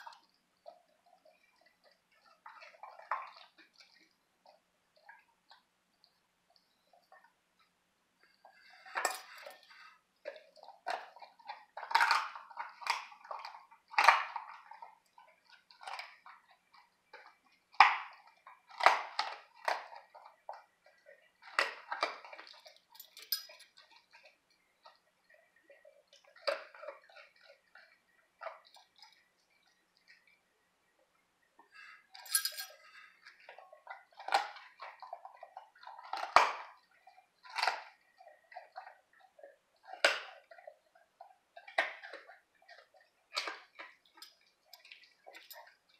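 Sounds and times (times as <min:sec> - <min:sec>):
dog crunching bones: 0:00.0 - 0:05.7, 0:08.4 - 0:24.2, 0:25.8 - 0:29.2, 0:32.2 - 0:45.9
bones clinking against metal bowl: 0:09.0 - 0:09.6, 0:22.9 - 0:23.7, 0:32.2 - 0:32.8.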